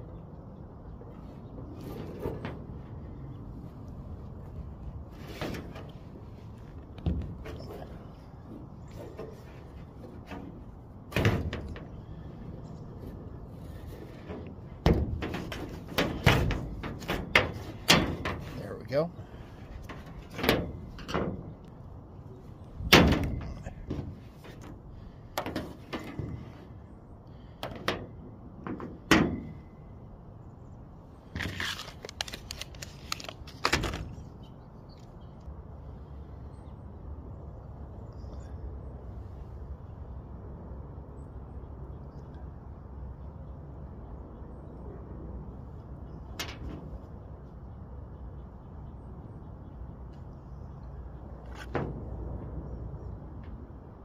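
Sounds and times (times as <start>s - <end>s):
low background rumble: 0.0s - 54.0s
clicks and rustling: 3.8s - 26.7s, 31.3s - 35.5s
sharp handling knocks: 13.0s - 18.6s.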